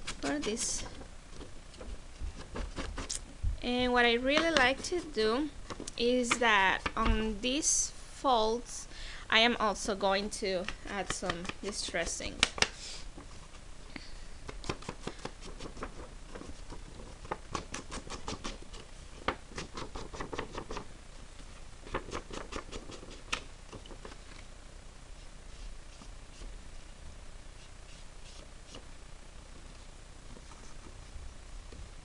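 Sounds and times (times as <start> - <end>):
ink pad tapping and scratching paper: 0.0 - 3.2, 4.3 - 7.2, 10.6 - 13.5, 14.5 - 20.9, 21.8 - 24.2.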